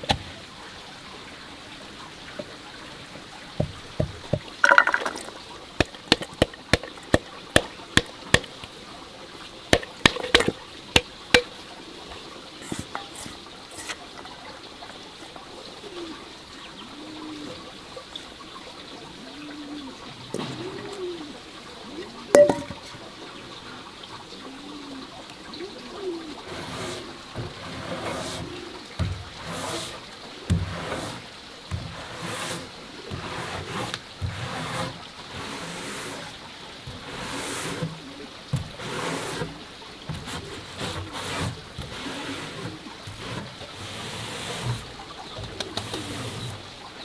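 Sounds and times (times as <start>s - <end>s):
sharp knocks: 9.7s - 11.5s
dove cooing: 15.6s - 18.0s, 18.9s - 27.2s, 37.9s - 38.5s, 45.4s - 46.6s.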